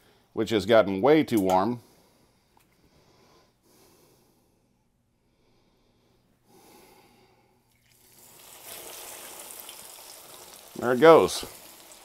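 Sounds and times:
faint breaths: 1.8s - 7.7s
meat frying in oil: 7.8s - 12.0s.

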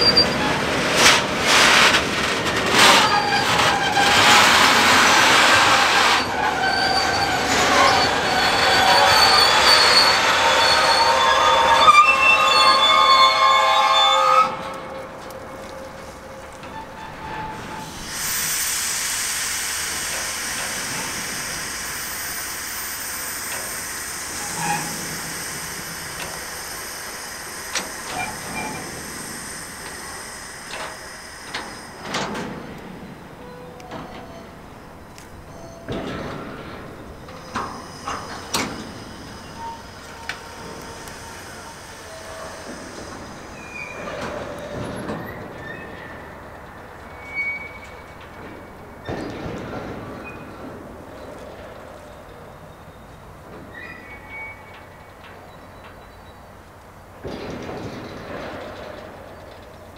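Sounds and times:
air brakes hissing: 0.0s - 53.1s
train brake squeal: 0.0s - 56.8s
knocks and clanks: 35.9s - 39.4s, 57.2s - 59.7s.

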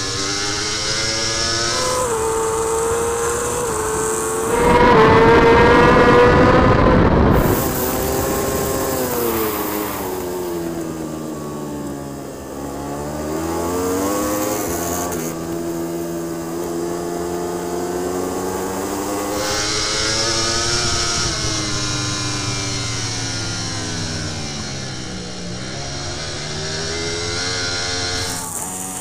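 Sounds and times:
motorcycle engine revving: 0.0s - 29.0s
wind rush: 2.2s - 10.7s, 19.4s - 25.4s.

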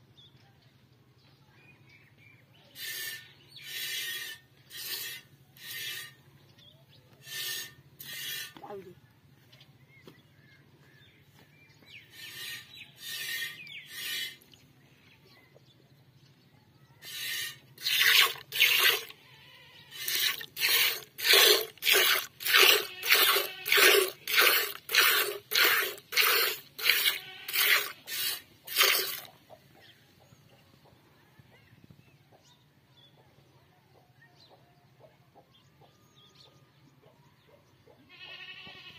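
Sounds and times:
milk squirting into metal bucket: 17.0s - 19.2s, 19.9s - 29.3s.

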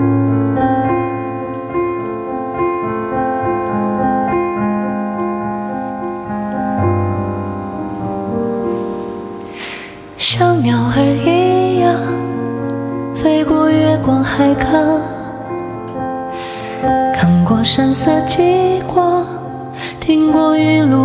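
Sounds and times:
slow piano chords and melody: 0.0s - 21.0s
sharp intake of breath: 9.5s - 10.2s, 16.3s - 16.8s.

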